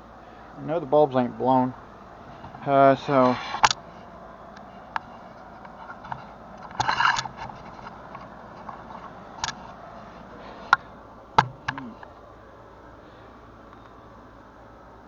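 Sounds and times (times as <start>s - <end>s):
scrape: 3.2s - 3.7s, 5.2s - 8.0s
sharp clicks and knocks: 4.9s - 9.7s, 11.4s - 12.1s
camera handling noise: 5.9s - 9.8s.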